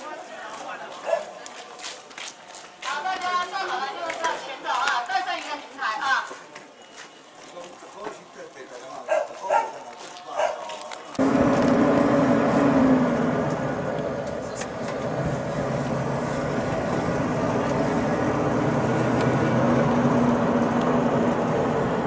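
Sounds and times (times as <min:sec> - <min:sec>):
vehicle running with engine hum: 0:11.2 - 0:22.0.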